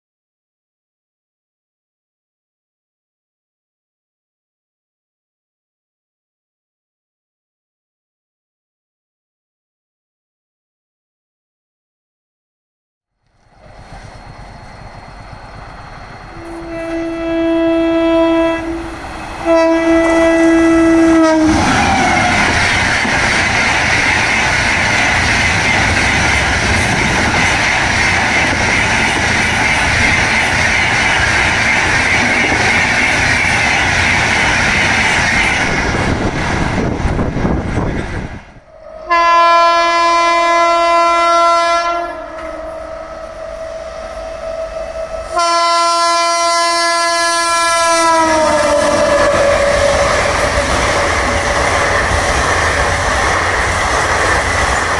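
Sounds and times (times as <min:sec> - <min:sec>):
train wheels rushing on rails: 0:13.4 - 0:38.6, 0:41.9 - 0:54.9
locomotive horn: 0:16.3 - 0:22.6, 0:38.7 - 0:51.3.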